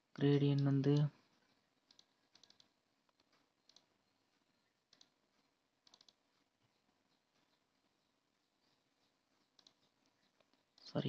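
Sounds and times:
computer mouse clicks: 1.8 - 3.9, 4.9 - 7.6, 8.6 - 10.9.

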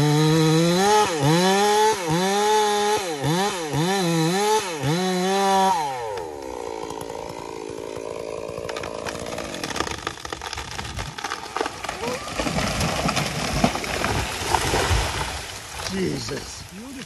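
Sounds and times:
chainsaw cutting wood: 0.0 - 16.3
sharp clicks and cracks: 6.1 - 14.8.

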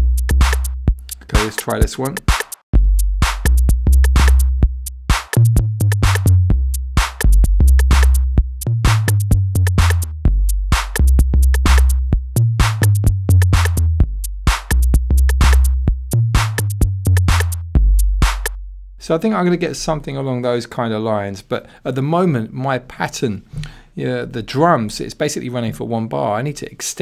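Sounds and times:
drum machine beat: 0.0 - 18.6
deep kick bass line: 0.0 - 19.0.

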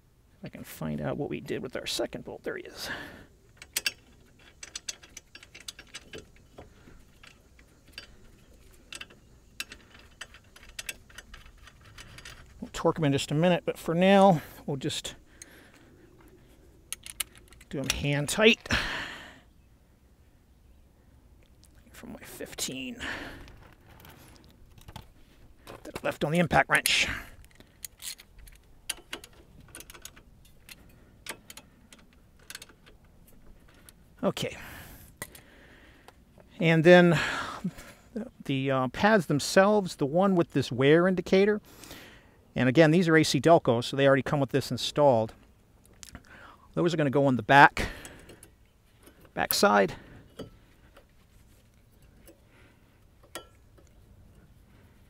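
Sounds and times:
metallic clicks of bolts threading: 3.5 - 18.6, 25.9 - 34.0, 46.9 - 51.1, 51.8 - 54.4
metal tool clicks: 16.9 - 18.0.

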